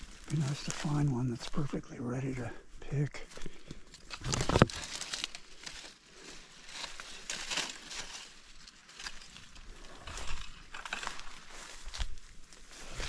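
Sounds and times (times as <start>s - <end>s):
leaves and branches rustling: 0.0s - 13.0s.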